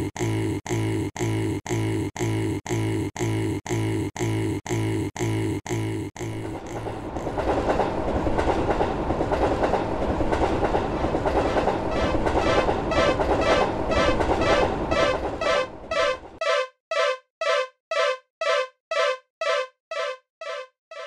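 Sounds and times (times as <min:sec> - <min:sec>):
cartoon train running on tracks: 0:00.0 - 0:21.0
railroad crossing alarm ringing: 0:12.6 - 0:21.0.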